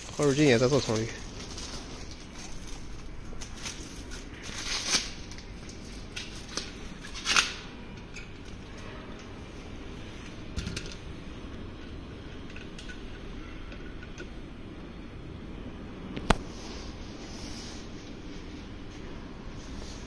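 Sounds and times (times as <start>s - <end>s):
plastic rustling: 0.0s - 7.7s.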